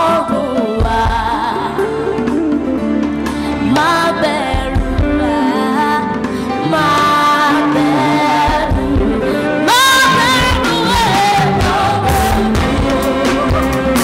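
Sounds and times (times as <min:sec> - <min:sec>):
live band playing: 0:00.0 - 0:14.0
girl singing into a microphone: 0:03.7 - 0:11.5.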